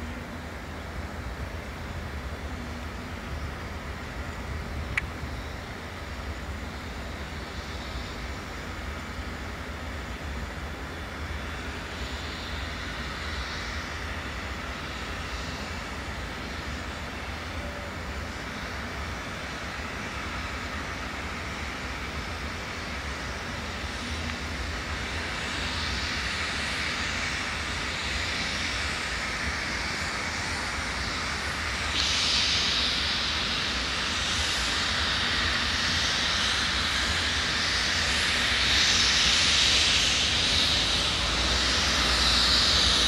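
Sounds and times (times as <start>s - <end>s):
steam and exhaust rushing: 0.0s - 43.0s
steam locomotive rumble: 0.0s - 43.0s.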